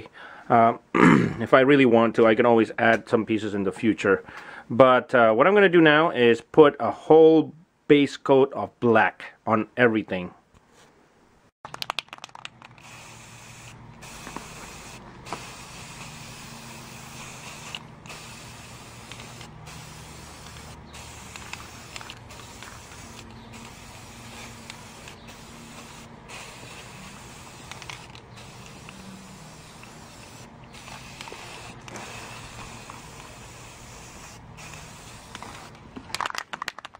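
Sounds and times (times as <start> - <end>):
aerosol spray can hissing: 11.8 - 35.8.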